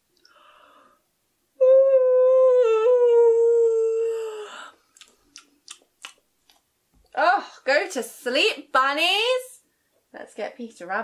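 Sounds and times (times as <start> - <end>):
woman yawning: 1.6 - 4.7.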